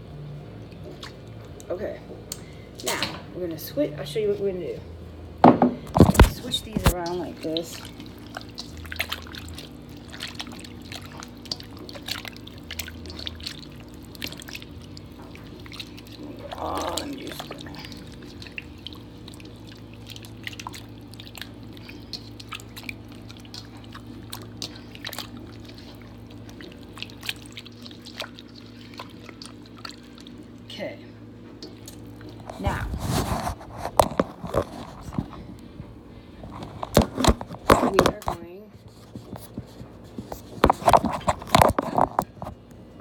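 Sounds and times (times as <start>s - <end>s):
hands squishing wet chicken: 0.6s - 3.0s, 6.0s - 38.2s.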